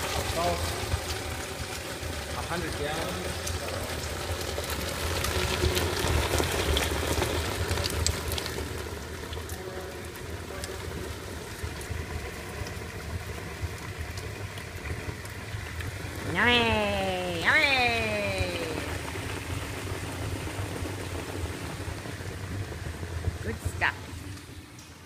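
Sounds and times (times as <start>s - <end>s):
wine gushing and splashing: 0.0s - 24.8s
low steady hum: 14.1s - 25.0s.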